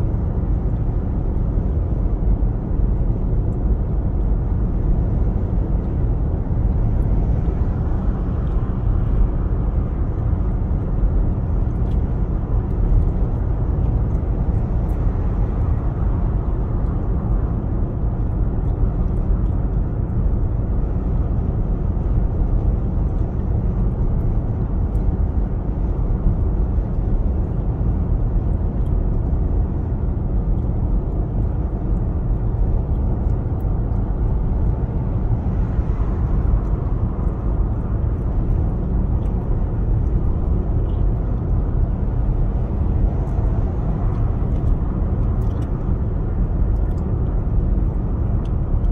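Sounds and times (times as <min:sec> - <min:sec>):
road and tyre noise in car: 0:00.0 - 0:48.9.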